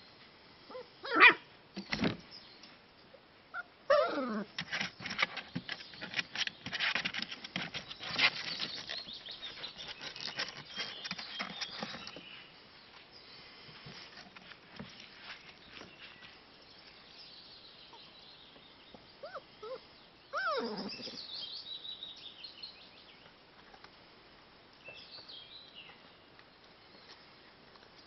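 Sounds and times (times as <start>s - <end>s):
puppy yipping: 0.7s - 1.4s, 19.2s - 20.9s
birds chirping: 4.8s - 14.0s, 14.8s - 23.4s.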